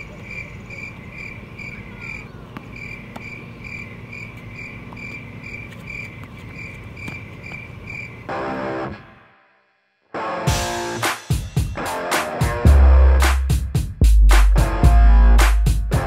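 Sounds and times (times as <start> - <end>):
crickets chirping: 0.0 - 8.8
low outdoor hum: 0.0 - 9.2.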